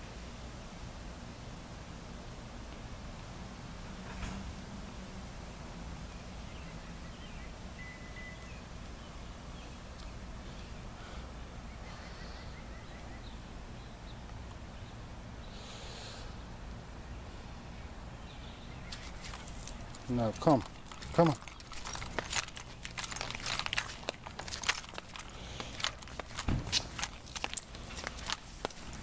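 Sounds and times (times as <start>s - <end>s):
bird chirps: 6.5s - 10.9s
rustling hiss: 15.4s - 16.6s.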